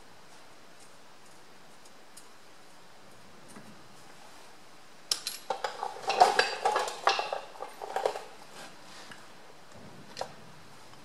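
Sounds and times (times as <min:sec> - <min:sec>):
steel nuts and washers clinking: 0:05.1 - 0:08.3.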